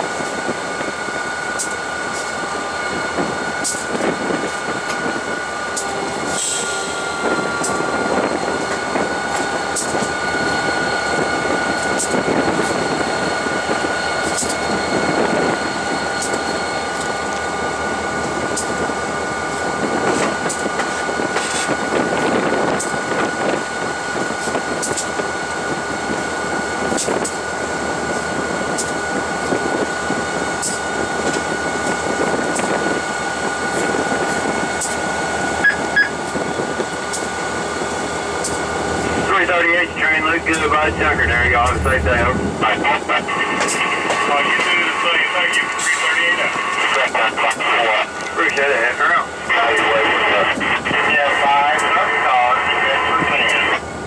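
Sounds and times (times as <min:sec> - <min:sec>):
diesel locomotive engine running: 0:00.0 - 0:54.0
high whine: 0:32.9 - 0:53.9.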